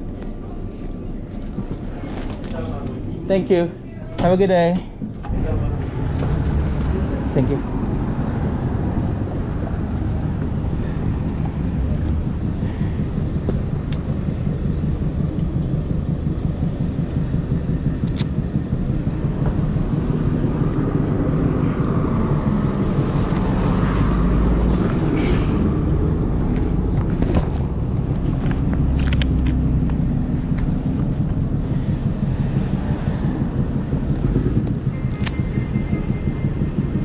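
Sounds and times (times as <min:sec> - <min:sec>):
heavy low rumble: 0:00.0 - 0:37.0
road traffic rumble: 0:00.0 - 0:37.0
sharp click: 0:18.0 - 0:18.4.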